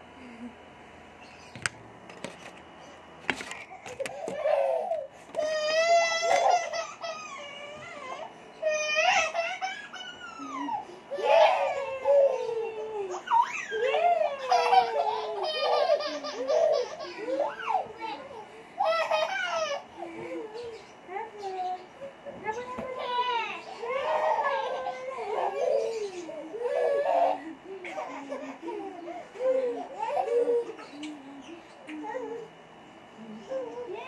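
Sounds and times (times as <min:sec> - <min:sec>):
infants squealing and laughing: 0:04.4 - 0:20.8, 0:23.0 - 0:31.1.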